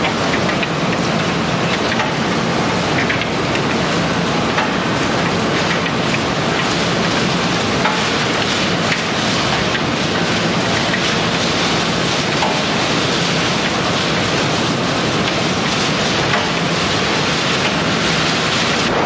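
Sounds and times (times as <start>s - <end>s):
shredder machinery rushing noise: 4.1s - 19.0s.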